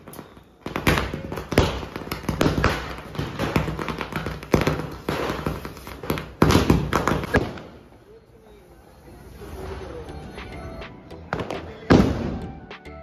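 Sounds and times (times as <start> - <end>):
firework fountain hissing and crackling: 0.0 - 7.9
loud firework crack: 0.0 - 7.9, 11.3 - 12.7.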